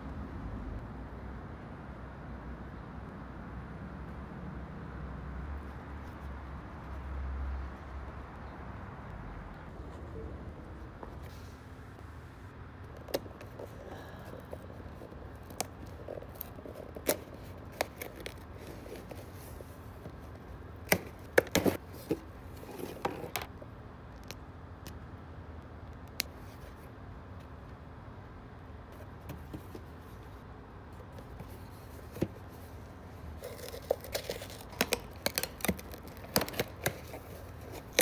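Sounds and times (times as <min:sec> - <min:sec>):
faint steady hum: 0:00.0 - 0:38.0
packing tape picked at: 0:33.4 - 0:38.0.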